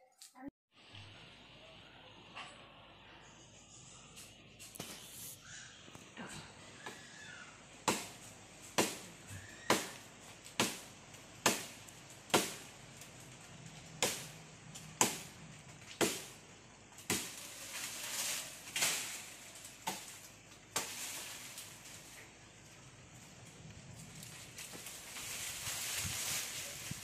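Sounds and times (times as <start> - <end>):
billhook chopping branch: 7.8 - 12.7, 14.0 - 16.4, 17.0 - 22.2
hazy rustling noise: 16.7 - 27.0.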